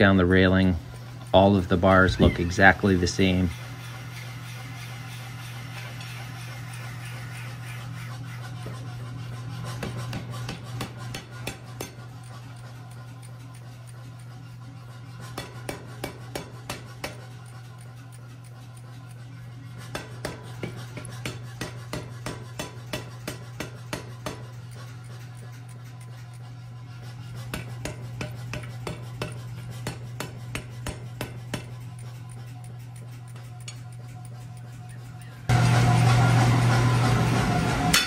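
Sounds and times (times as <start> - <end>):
motor humming: 0.0 - 8.7, 31.0 - 38.0.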